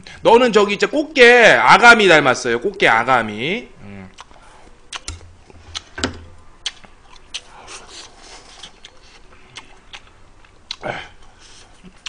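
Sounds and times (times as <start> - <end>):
chopsticks clicking: 4.9 - 5.9
mouth smacks: 6.6 - 12.0.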